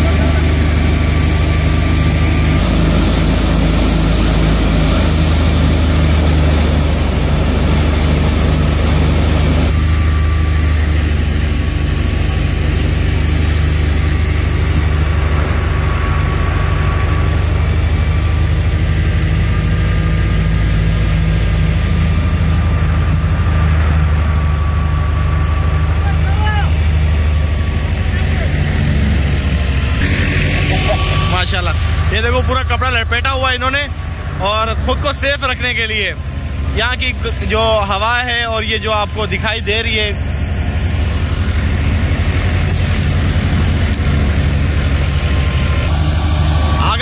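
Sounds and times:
thresher engine drone: 0:00.0 - 0:47.0
threshing clatter: 0:40.1 - 0:47.0.

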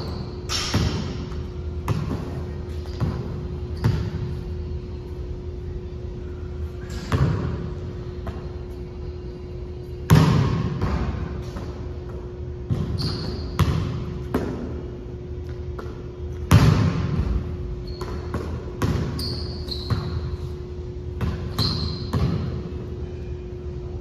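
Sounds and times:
basketball bouncing on gym floor: 0:00.0 - 0:04.4, 0:06.9 - 0:08.8, 0:10.0 - 0:20.5, 0:21.1 - 0:22.8
sneaker squeaks: 0:00.0 - 0:05.2, 0:06.6 - 0:10.2, 0:10.8 - 0:14.4, 0:17.2 - 0:23.6
steady low hum: 0:00.0 - 0:24.0.

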